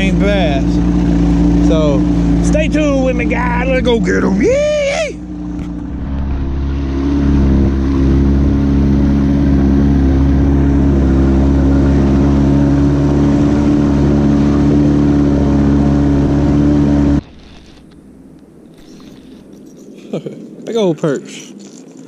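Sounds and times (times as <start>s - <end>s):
outboard motor idling: 0.0s - 19.7s.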